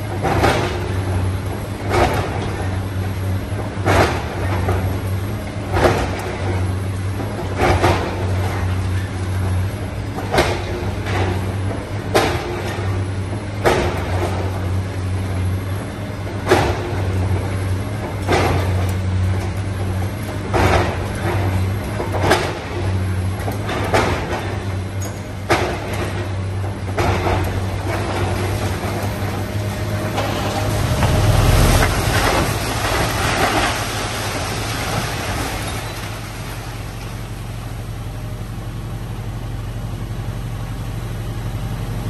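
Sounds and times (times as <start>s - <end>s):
excavator diesel engine running: 0.0s - 42.0s
concrete and brick crashing: 30.2s - 37.4s.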